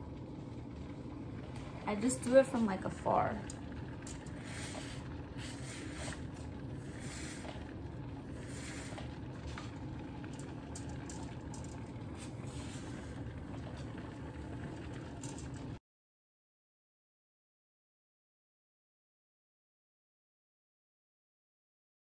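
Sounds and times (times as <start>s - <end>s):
garment steamer running: 1.4s - 15.6s.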